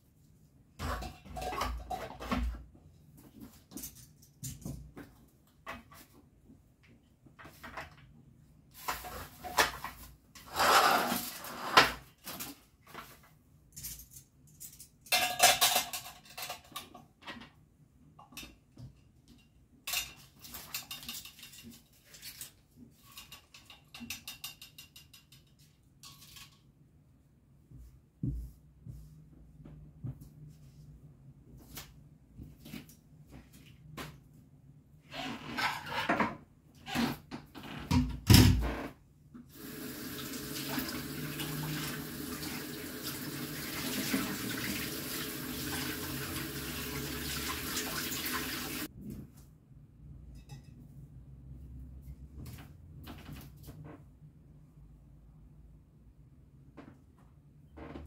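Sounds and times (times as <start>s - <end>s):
dishes and cutlery clinking: 14.6s - 17.0s, 19.3s - 26.6s, 50.3s - 50.8s.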